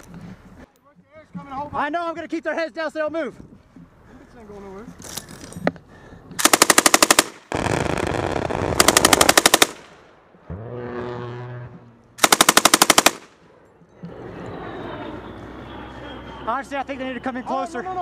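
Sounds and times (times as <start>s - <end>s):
machine gun firing bursts: 6.4s - 10.0s, 12.2s - 13.3s.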